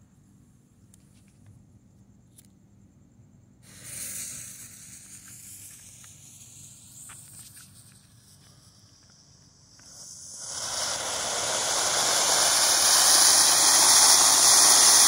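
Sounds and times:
firework fountain hissing: 3.6 - 15.0.

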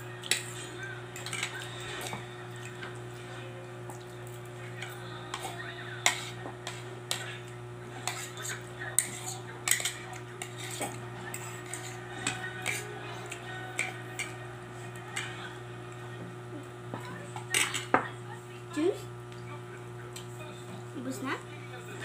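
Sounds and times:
fork clinking on plate: 8.0 - 12.9.

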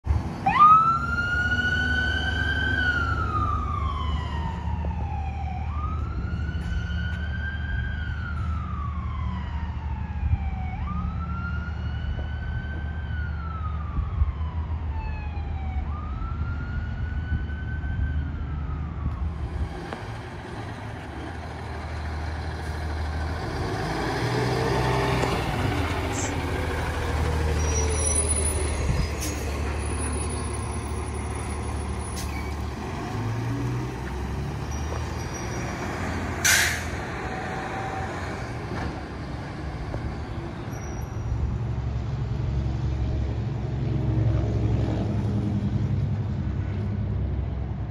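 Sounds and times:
fire engine motor rumbling: 0.0 - 47.9
siren wailing: 0.4 - 19.5.

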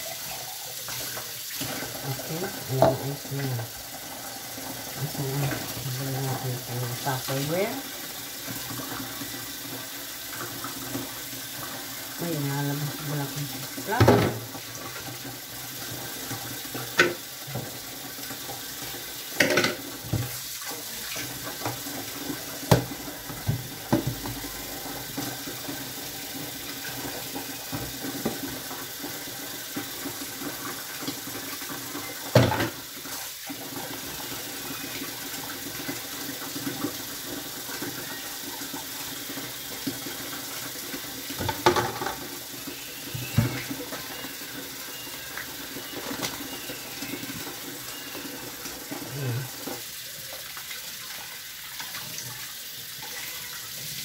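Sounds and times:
tap running into metal sink: 13.8 - 15.1, 16.8 - 17.8, 19.4 - 20.4, 22.6 - 24.6, 32.3 - 32.8, 41.3 - 42.2, 43.1 - 44.0
plastic items knocking against sink: 14.0 - 14.5, 19.4 - 20.4, 22.7 - 24.5.

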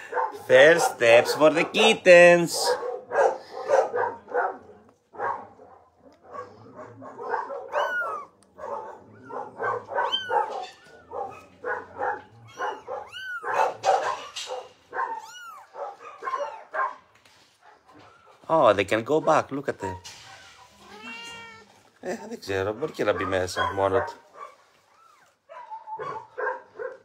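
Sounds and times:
dogs barking: 0.0 - 20.8, 22.5 - 24.8, 25.4 - 27.0
kittens mewing: 7.5 - 16.6, 20.4 - 22.0.

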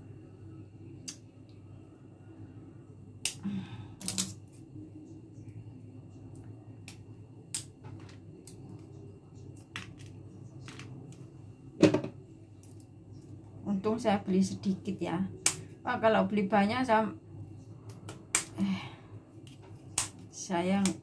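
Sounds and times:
pliers cracking a nut shell: 4.0 - 4.4.

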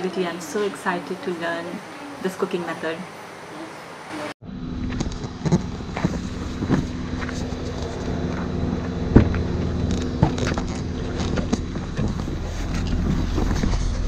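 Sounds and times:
car engine idling: 4.8 - 13.9
footsteps on dirt: 5.0 - 13.7.

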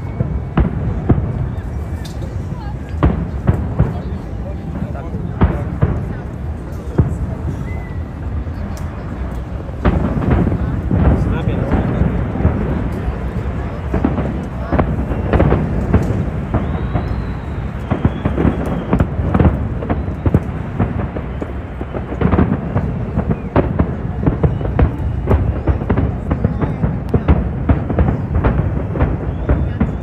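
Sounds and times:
faint high whistle: 0.0 - 0.4, 7.5 - 8.2, 16.5 - 19.1, 29.2 - 30.0
fireworks bangs: 0.0 - 30.0.

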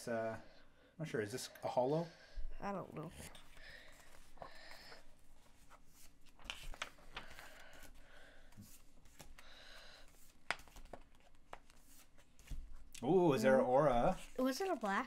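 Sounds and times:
cards rustling and clicking: 3.3 - 13.0.

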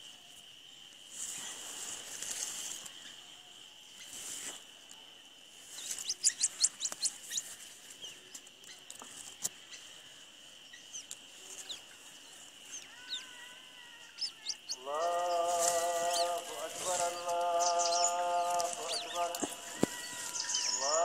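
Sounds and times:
insect trilling: 0.0 - 21.0
dry grass rustling: 0.9 - 21.0
chicks cheeping: 5.7 - 9.9, 10.7 - 21.0.

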